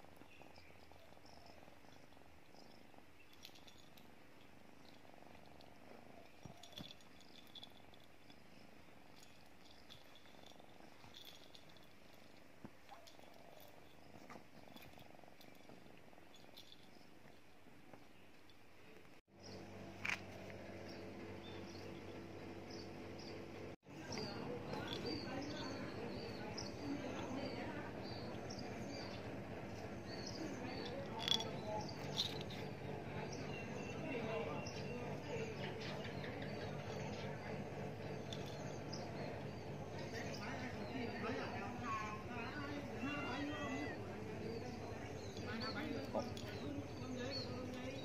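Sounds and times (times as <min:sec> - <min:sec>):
kitten purring: 0:00.0 - 0:19.2, 0:20.2 - 0:48.0
faint high-pitched chirping: 0:20.8 - 0:48.0.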